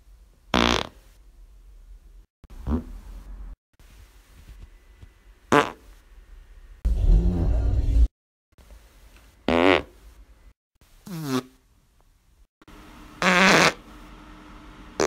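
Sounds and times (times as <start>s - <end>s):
farts: 0.5s - 1.0s, 2.6s - 2.9s, 5.5s - 5.9s, 9.5s - 10.0s, 11.1s - 11.6s, 13.2s - 13.8s.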